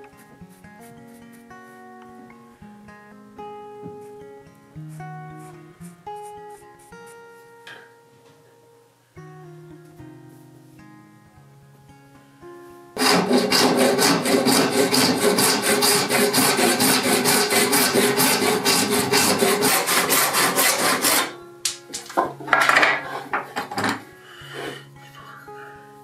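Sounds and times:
hand file rasping on metal: 13.0 - 21.4.

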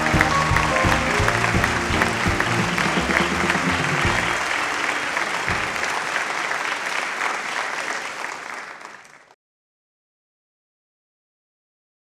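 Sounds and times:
music: 0.0 - 6.0
large audience applauding: 0.0 - 9.4.

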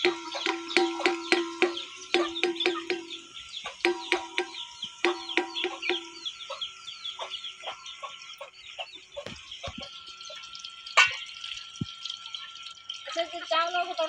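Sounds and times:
chickens clucking: 0.0 - 11.2.

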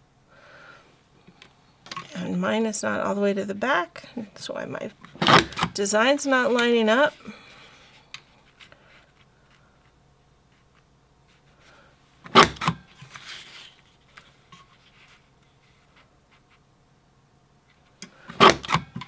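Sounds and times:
paper punch clacking: 5.1 - 5.8, 18.3 - 19.0
paper rustling: 13.0 - 16.6.

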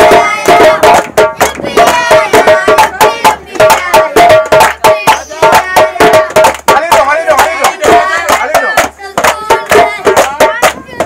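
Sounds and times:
children singing: 0.0 - 6.4, 7.5 - 11.0
djembe drum beat: 0.0 - 11.0
hand claps: 0.4 - 2.0, 3.7 - 5.2, 6.3 - 6.8, 7.4 - 11.0.

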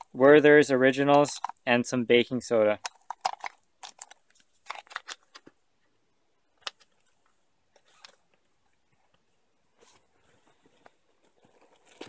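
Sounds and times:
packets rustling: 2.8 - 5.5, 9.8 - 12.0.

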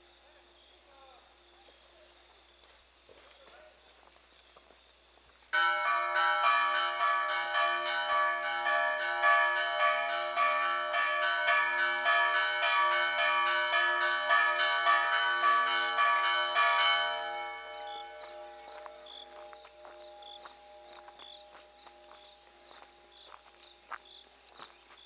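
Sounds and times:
bells ringing a rapid peal: 5.6 - 23.6.

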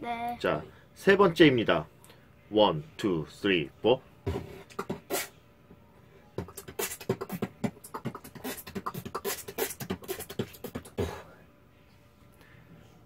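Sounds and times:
man beatboxing: 4.3 - 5.3, 6.4 - 11.3.

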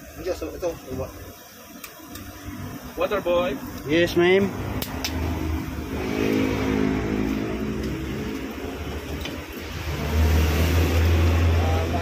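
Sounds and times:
vehicle engine humming: 2.1 - 12.0.

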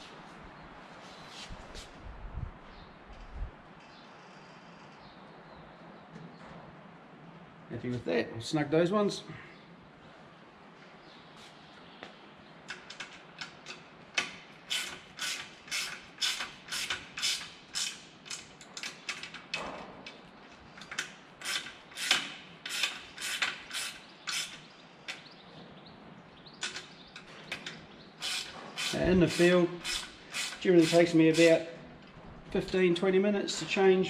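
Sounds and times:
ratchet wrench clicking: 12.7 - 19.4, 20.8 - 24.6, 28.2 - 31.6.

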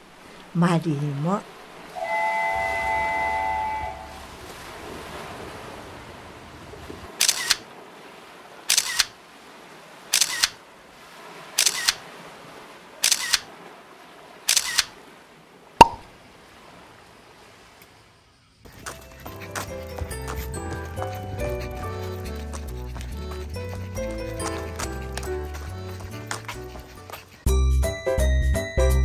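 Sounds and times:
camera shutter clicking: 7.2 - 7.6, 8.7 - 9.1, 10.2 - 10.6, 11.6 - 12.0, 13.0 - 13.4, 14.5 - 14.9.

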